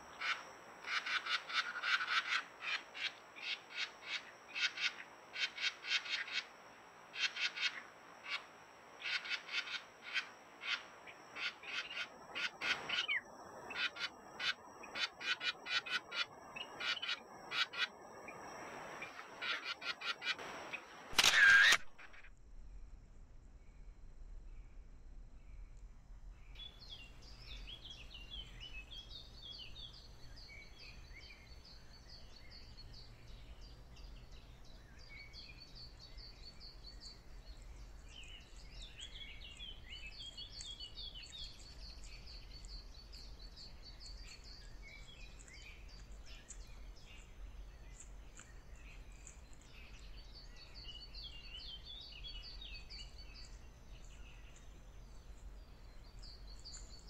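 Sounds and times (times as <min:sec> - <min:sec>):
steady low hum: 0:00.0 - 0:57.0
birds singing and calling: 0:07.2 - 0:18.4, 0:19.0 - 0:22.2, 0:26.5 - 0:57.0.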